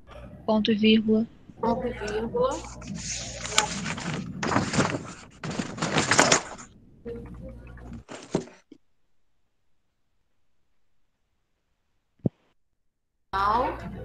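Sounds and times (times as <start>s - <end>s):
hum: 0.0s - 8.4s
microphone crackling and rustling: 2.4s - 6.7s.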